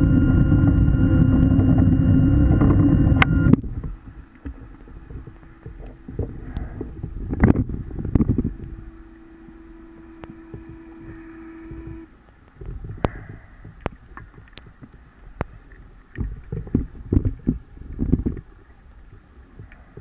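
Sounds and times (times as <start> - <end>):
regulator hum: 0.0 - 12.6.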